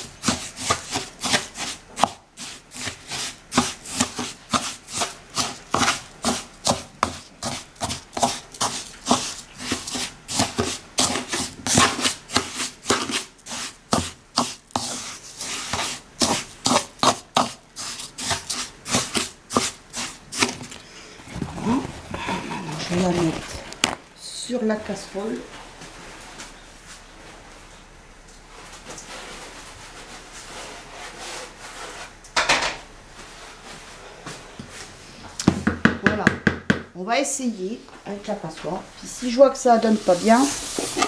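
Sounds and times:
spatula scraping grain in bowl: 0:00.0 - 0:20.7, 0:39.0 - 0:41.0.

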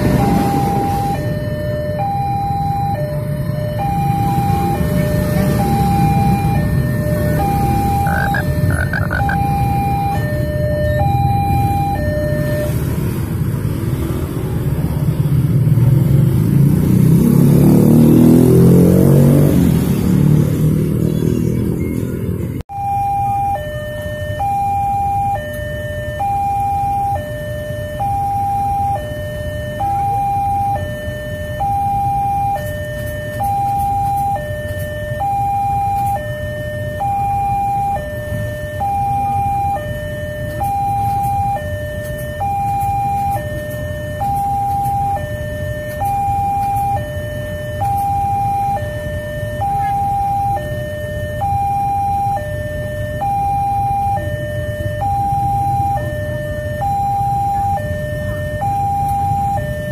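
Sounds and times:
level crossing alarm tone: 0:00.0 - 0:13.2, 0:22.7 - 0:59.9
train rumble and wheel clatter: 0:11.6 - 0:16.4.

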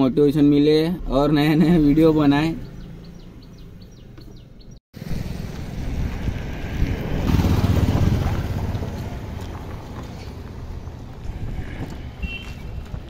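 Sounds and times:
truck driving past: 0:01.8 - 0:12.2.

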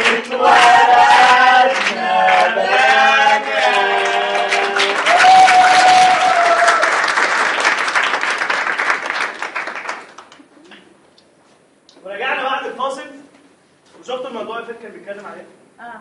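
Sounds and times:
group singing la la la: 0:00.0 - 0:06.2
audience applause: 0:00.0 - 0:10.5
rhythmic clapping: 0:00.0 - 0:10.8.

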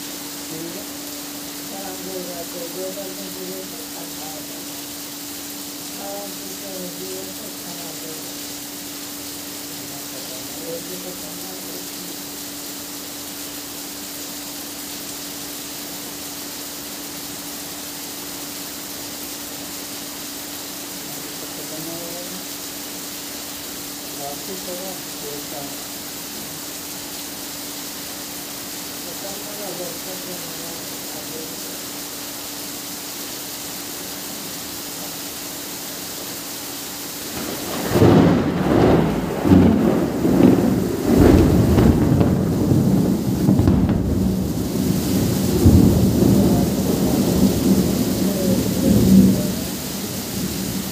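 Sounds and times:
rain falling: 0:00.0 - 0:50.9
rolling thunder rumble: 0:37.3 - 0:50.9.

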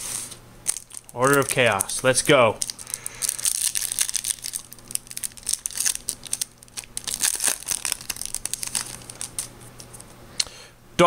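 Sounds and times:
wrapper torn and crinkled: 0:00.6 - 0:10.1.

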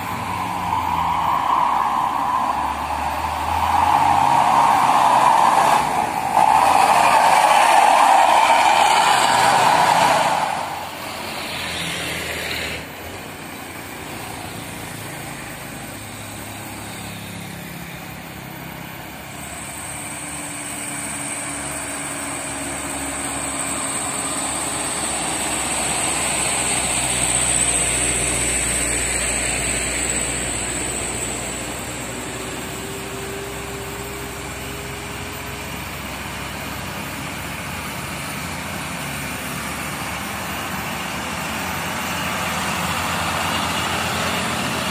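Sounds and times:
motorcycle and car engines passing: 0:00.0 - 0:07.4, 0:09.2 - 0:19.0, 0:19.6 - 0:44.9
heavy truck engine: 0:00.0 - 0:44.9.

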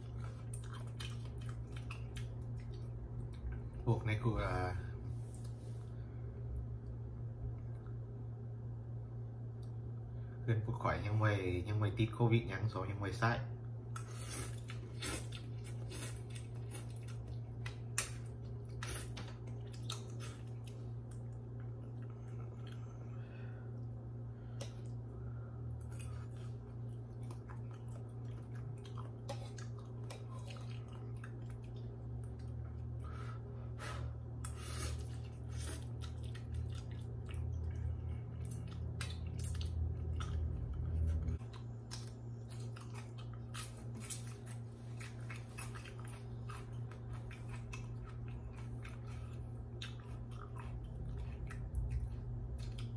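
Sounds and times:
chewing: 0:00.0 - 0:03.8, 0:13.9 - 0:25.0, 0:25.7 - 0:33.2, 0:34.4 - 0:52.9
low hum: 0:00.0 - 0:52.9.

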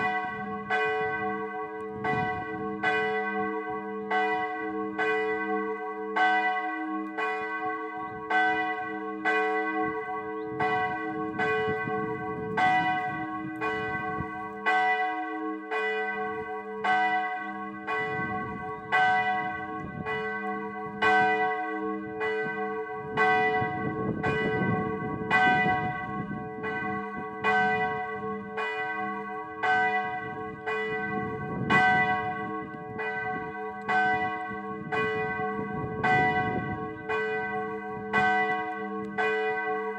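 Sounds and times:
church bell tolling: 0:00.0 - 0:39.9.

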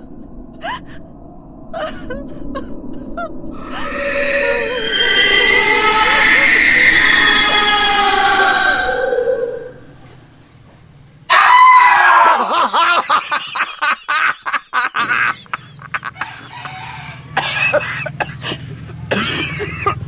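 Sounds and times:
loud shrill cry: 0:03.6 - 0:09.9, 0:11.3 - 0:12.6
bursts of laughter: 0:12.0 - 0:20.0.

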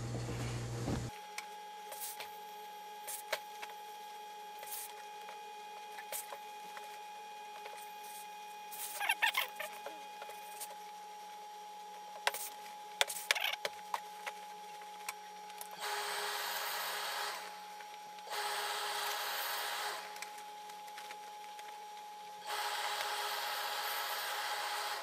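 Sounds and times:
steam iron hissing: 0:22.5 - 0:25.0.

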